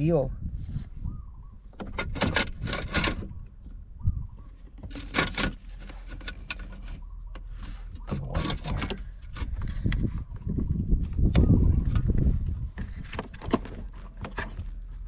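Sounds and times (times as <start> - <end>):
steady low rumble: 8.8 - 13.1.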